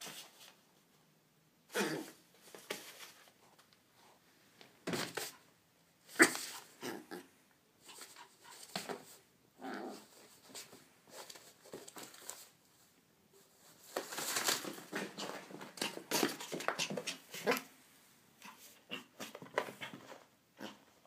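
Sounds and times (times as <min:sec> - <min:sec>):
paper rustling and crinkling: 0:10.1 - 0:12.6, 0:13.4 - 0:17.2
small dog noises: 0:14.9 - 0:17.8, 0:18.4 - 0:21.0.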